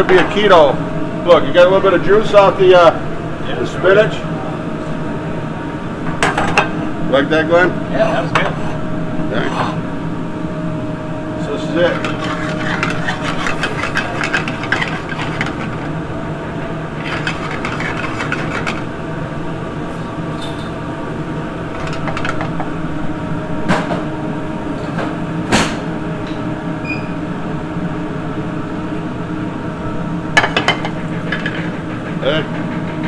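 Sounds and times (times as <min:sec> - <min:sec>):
kitchen equipment humming: 0:00.0 - 0:33.0
skillet and utensil scraping: 0:11.6 - 0:16.1, 0:16.9 - 0:19.0.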